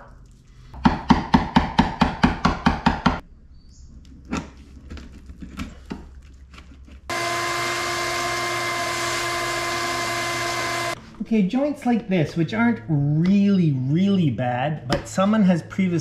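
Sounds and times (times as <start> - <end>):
shop vacuum running: 7.1 - 11.0.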